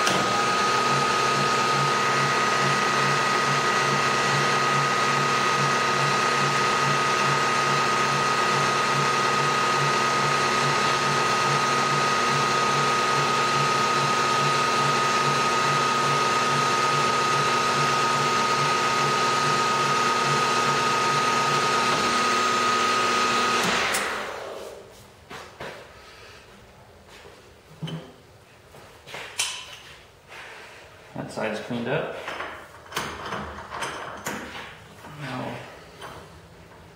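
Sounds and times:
milling machine whining drone: 0.0 - 24.0.

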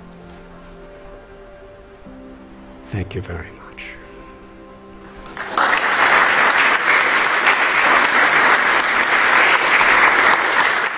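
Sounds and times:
audience applauding: 5.1 - 10.9.

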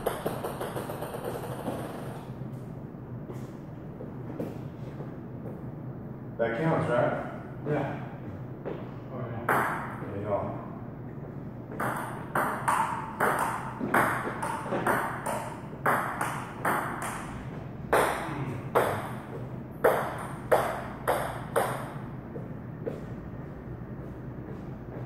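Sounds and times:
ping pong ball bouncing on table: 0.0 - 2.2, 9.5 - 10.0, 11.7 - 22.0
ping pong ball hitting paddles: 0.0 - 2.3, 9.5 - 10.1, 11.7 - 23.0.

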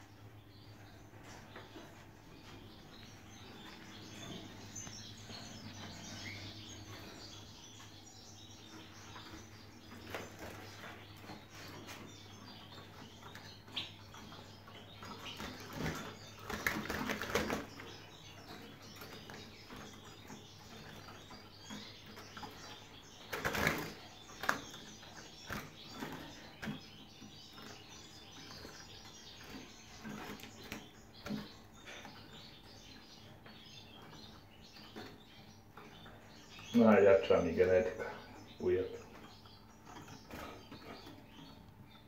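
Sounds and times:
bird wings flapping in cages: 14.2 - 27.8.

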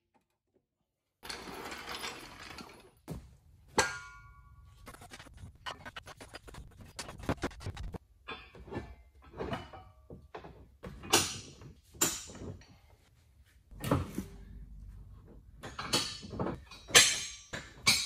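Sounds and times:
metal bar knocking and scraping: 15.6 - 18.0.

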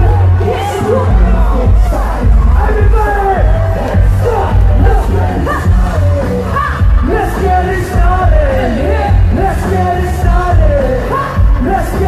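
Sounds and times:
music with heavy bass beat: 0.0 - 12.0.

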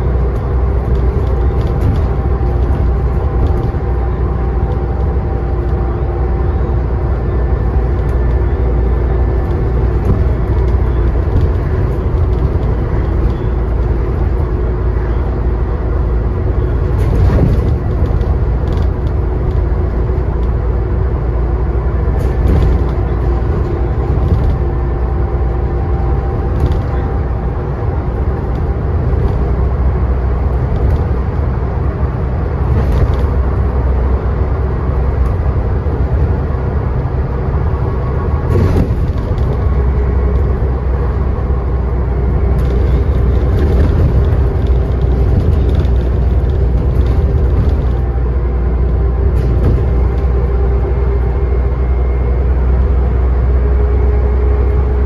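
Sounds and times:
bus diesel engine rumble: 0.0 - 55.0.

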